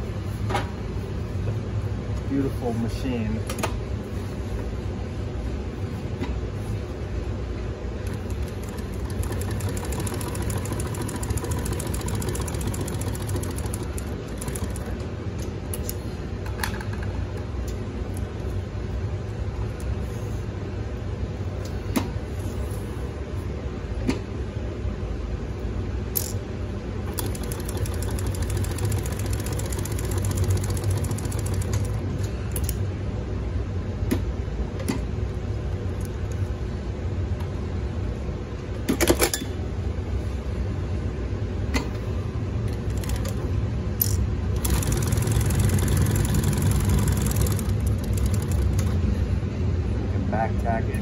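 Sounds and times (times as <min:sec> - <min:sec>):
sewing machine stitching fabric: 0:08.1 - 0:14.9, 0:27.1 - 0:31.9, 0:44.6 - 0:48.8
motor hum: 0:27.0 - 0:32.8, 0:42.7 - 0:49.6.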